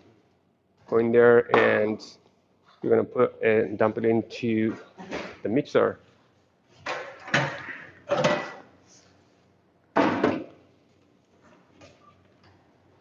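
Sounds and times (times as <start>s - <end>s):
plastic bucket clunks and rustles: 6.9s - 8.6s.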